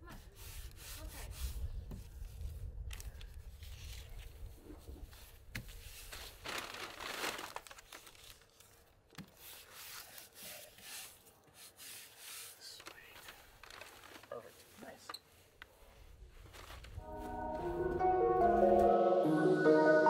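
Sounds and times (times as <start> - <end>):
tape tearing: 6.0 - 9.4.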